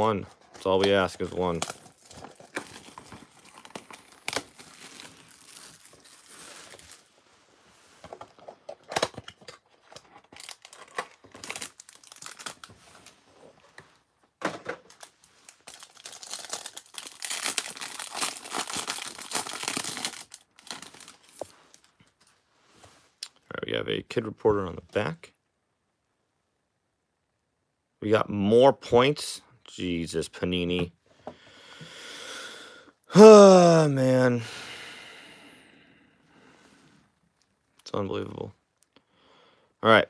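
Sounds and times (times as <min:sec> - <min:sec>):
packaging tearing and crinkling: 0:00.6 - 0:07.1, 0:08.8 - 0:13.0, 0:14.9 - 0:21.9.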